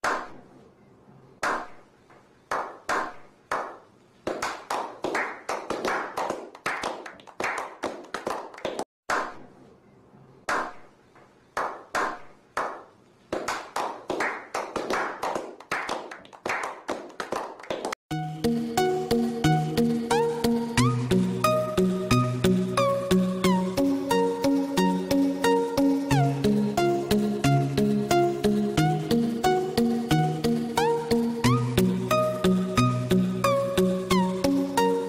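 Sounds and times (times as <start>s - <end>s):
hand claps and taps: 1.4s - 9.3s, 10.5s - 18.0s
music: 18.1s - 35.0s.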